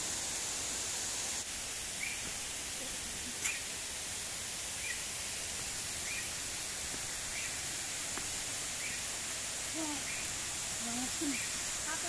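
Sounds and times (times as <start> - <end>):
steady rushing hiss: 0.0 - 12.0
small bird chirping: 2.0 - 2.3, 3.4 - 3.7, 6.0 - 6.4, 7.3 - 7.7, 8.8 - 9.1, 9.8 - 10.4, 11.2 - 11.6.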